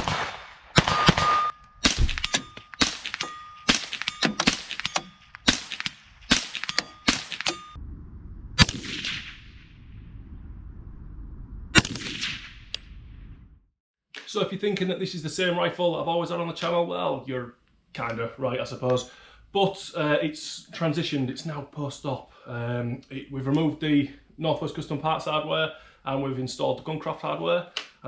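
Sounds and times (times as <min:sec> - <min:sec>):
gunshot echo: 0:00.0 - 0:07.8, 0:08.6 - 0:10.0, 0:11.7 - 0:12.7
rifle shots: 0:00.0 - 0:07.8, 0:08.6 - 0:09.6, 0:11.7 - 0:12.7
metallic ringing ding: 0:00.9 - 0:05.5, 0:06.5 - 0:07.8
low rumble: 0:07.5 - 0:13.7.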